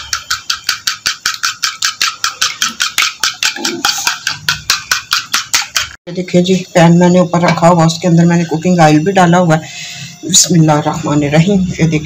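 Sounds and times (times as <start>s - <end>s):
utensil clicking against bowl: 0.0s - 6.0s.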